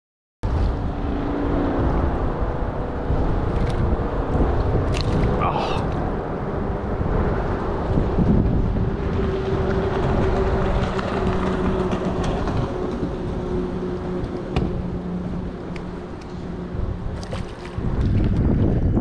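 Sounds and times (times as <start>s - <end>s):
wind buffeting microphone: 0.5s - 19.0s
motorboat engine humming: 0.6s - 19.0s.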